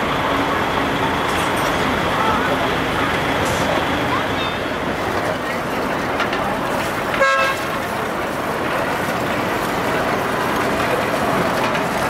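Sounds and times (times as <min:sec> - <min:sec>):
crowd noise: 0:00.0 - 0:12.0
traffic noise: 0:00.0 - 0:12.0
vehicle horn toot: 0:07.2 - 0:07.7.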